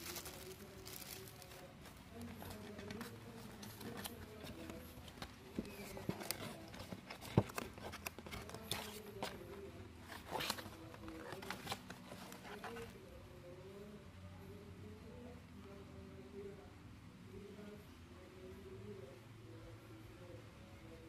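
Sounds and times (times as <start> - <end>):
handling cardboard box: 0.0 - 13.0.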